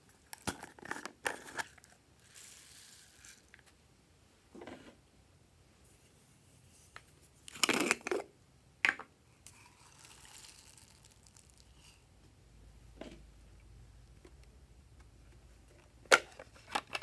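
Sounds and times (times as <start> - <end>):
foam beads pouring: 2.2 - 3.6, 9.5 - 11.9.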